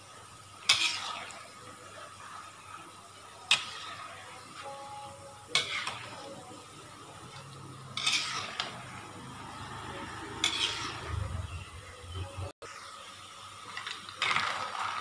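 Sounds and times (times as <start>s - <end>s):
oil sizzling: 0.0s - 15.0s
metal spoon scraping a wok: 0.6s - 1.5s, 3.5s - 4.5s, 5.5s - 6.4s, 7.3s - 11.6s.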